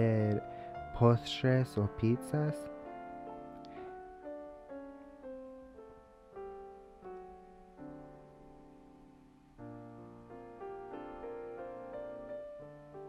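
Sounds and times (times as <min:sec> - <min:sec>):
slow piano melody: 0:00.0 - 0:13.0.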